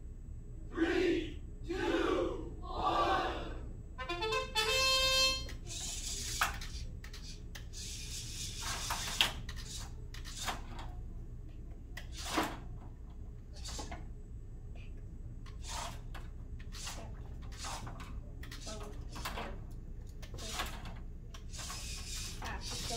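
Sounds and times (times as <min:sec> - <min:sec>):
steady low hum: 0:00.0 - 0:22.9
robot motors whirring: 0:05.7 - 0:10.6, 0:20.2 - 0:22.9.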